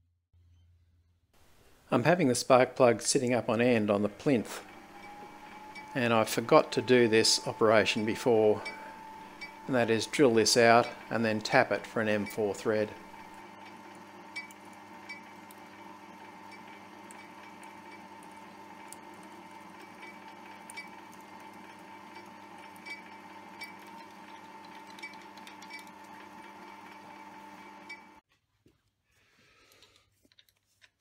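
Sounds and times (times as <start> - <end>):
metal lathe drilling: 3.6 - 28.2.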